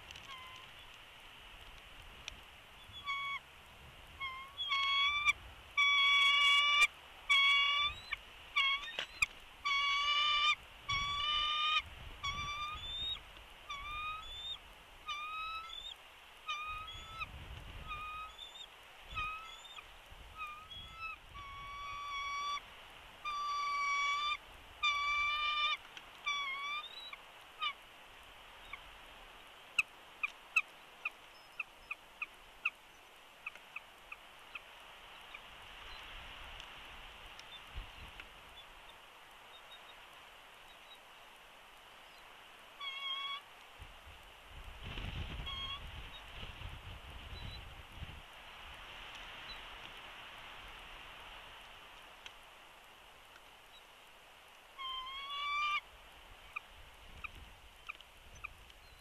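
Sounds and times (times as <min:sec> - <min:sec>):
eagle chattering calls: 0:02.8 - 0:03.4, 0:04.2 - 0:19.8, 0:20.4 - 0:22.6, 0:23.2 - 0:27.8, 0:42.8 - 0:43.4, 0:54.8 - 0:55.8.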